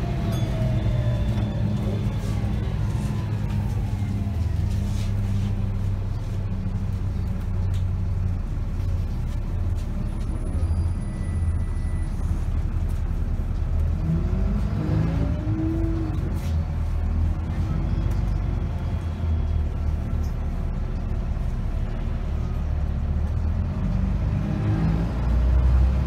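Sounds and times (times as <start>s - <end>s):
bus engine droning: 0.0s - 26.0s.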